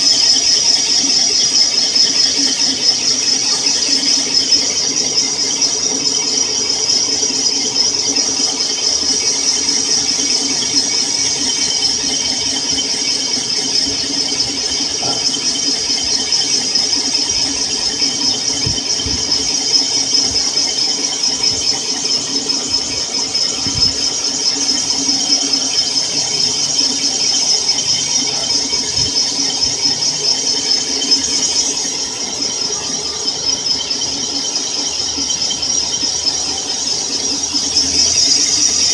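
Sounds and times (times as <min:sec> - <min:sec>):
boring bar high-pitched squeal: 0:00.0 - 0:38.9
low steady machine tone: 0:00.0 - 0:38.9.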